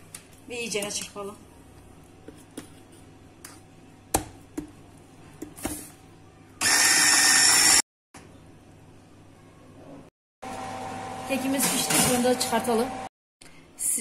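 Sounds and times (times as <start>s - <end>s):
electric hand mixer whining: 6.6s - 7.8s.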